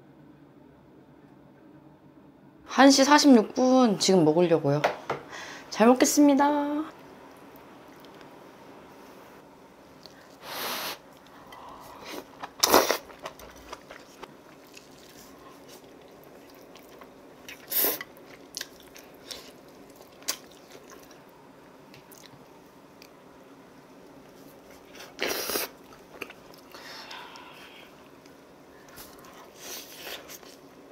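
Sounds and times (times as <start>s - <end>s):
quiet chewing: 7.0s - 8.3s, 9.9s - 10.5s, 11.1s - 23.2s, 24.0s - 30.7s
loud eating noises: 10.0s - 21.4s, 24.6s - 30.8s.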